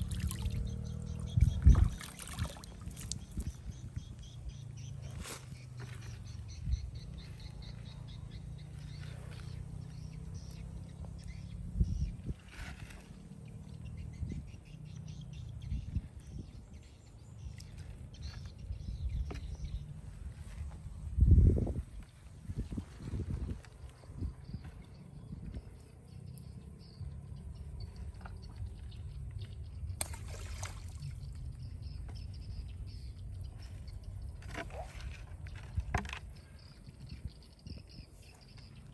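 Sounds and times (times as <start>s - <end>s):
water splashing: 0.0s - 3.5s, 30.0s - 31.4s.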